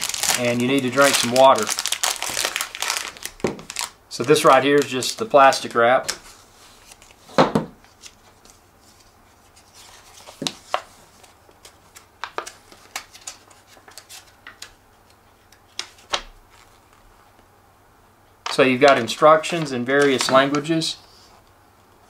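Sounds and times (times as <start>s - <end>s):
packaging clicks: 0.0s - 6.2s
plastic wrap crinkling: 0.0s - 14.7s, 18.5s - 21.0s.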